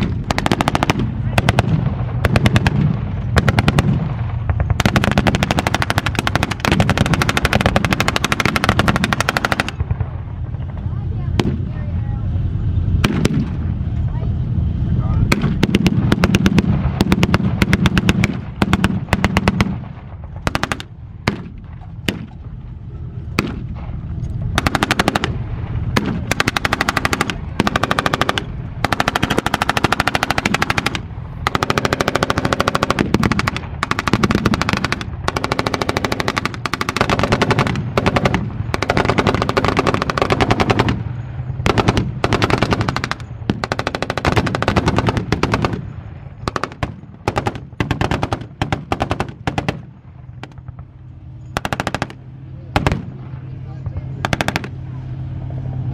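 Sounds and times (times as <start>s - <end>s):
machine guns firing bursts: 0.0s - 10.0s, 15.3s - 22.4s, 24.6s - 50.7s, 51.5s - 52.2s, 54.2s - 54.8s
tank engines rumbling: 0.0s - 55.9s.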